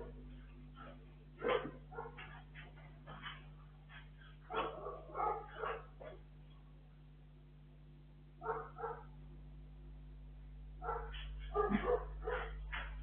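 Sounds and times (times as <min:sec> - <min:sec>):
steady low hum: 0:00.0 - 0:13.0
dog barking: 0:01.4 - 0:02.4, 0:04.5 - 0:06.2, 0:08.4 - 0:09.2, 0:10.8 - 0:12.9.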